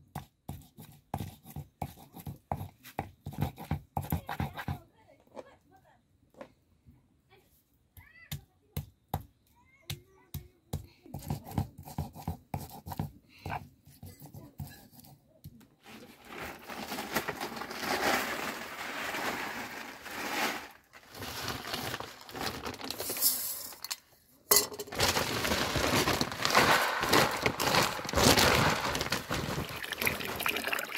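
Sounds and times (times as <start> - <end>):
plastic bags rustling and crinkling: 15.8 - 24.0, 24.6 - 30.9.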